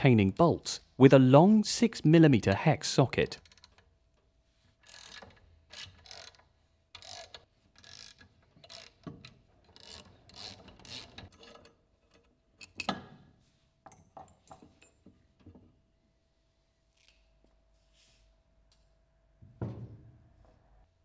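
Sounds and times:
socket wrench ratcheting: 0:04.8 - 0:11.7.

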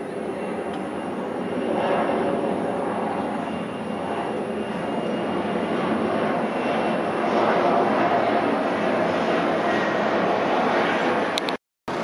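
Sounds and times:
jet engines passing overhead: 0:00.0 - 0:12.0.

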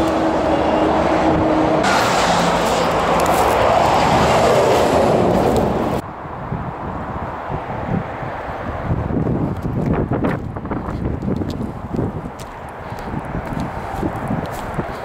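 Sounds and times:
loud rushing noise: 0:00.0 - 0:06.1
steady engine hum: 0:00.0 - 0:15.0.

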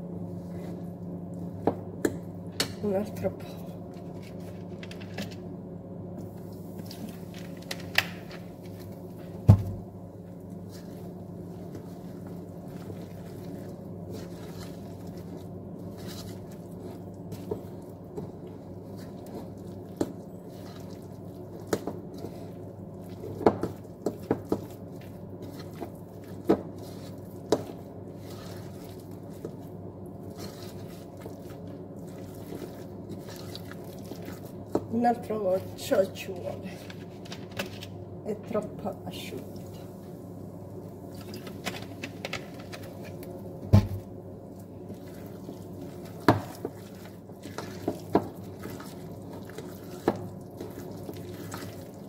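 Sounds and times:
steady low hum: 0:00.0 - 0:52.0
fork stirring thick batter: 0:10.6 - 0:34.9, 0:44.5 - 0:52.0.

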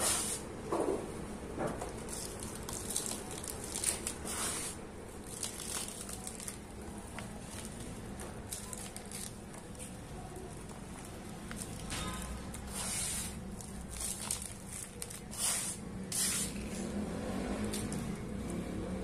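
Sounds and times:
hands sweeping dry powder: 0:00.0 - 0:00.4, 0:12.7 - 0:13.4, 0:15.3 - 0:16.8.

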